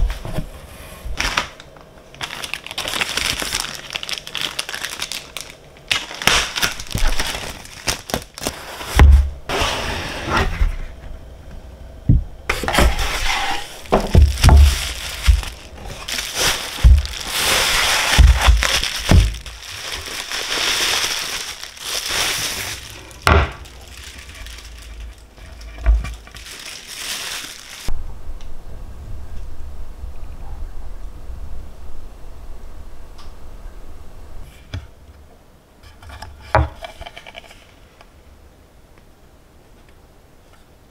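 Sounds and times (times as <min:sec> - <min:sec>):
crackling crinkling noise: 0:00.0 - 0:09.0, 0:12.6 - 0:28.0, 0:35.8 - 0:38.2.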